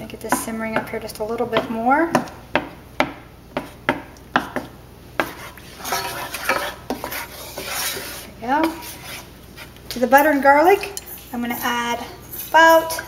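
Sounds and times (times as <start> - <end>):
spoon scraping skillet: 4.4 - 9.9.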